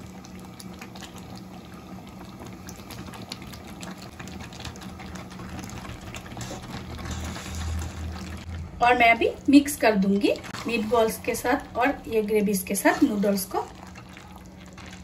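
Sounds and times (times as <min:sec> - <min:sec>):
gravy bubbling and popping: 0:00.0 - 0:15.0
low hum: 0:05.4 - 0:15.0.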